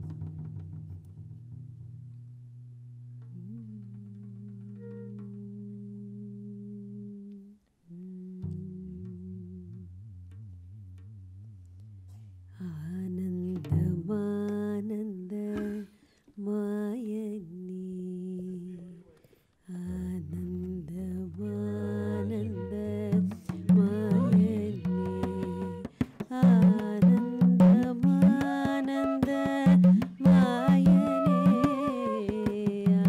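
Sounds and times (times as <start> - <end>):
tabla strokes: 0.0 - 5.9, 8.2 - 14.8, 20.7 - 33.0
person singing long phrases: 19.8 - 33.0.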